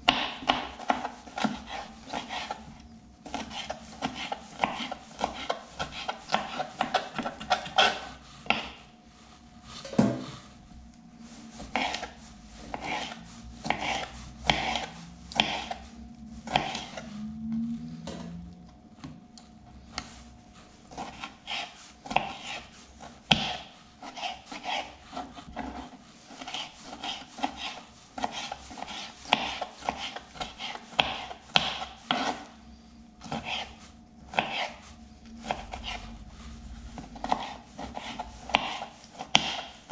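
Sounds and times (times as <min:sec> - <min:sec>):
knife slicing on cutting board: 0:00.1 - 0:08.8, 0:11.3 - 0:17.1, 0:20.9 - 0:32.5, 0:33.2 - 0:34.8, 0:37.0 - 0:39.9.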